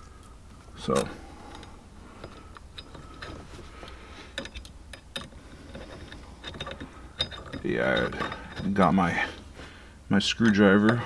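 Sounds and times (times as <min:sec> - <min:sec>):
light metallic clicks and taps: 0:10.4 - 0:11.0.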